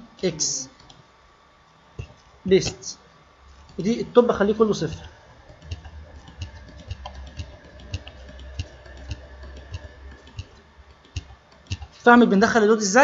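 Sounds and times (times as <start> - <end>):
keyboard keystrokes: 4.9 - 12.0.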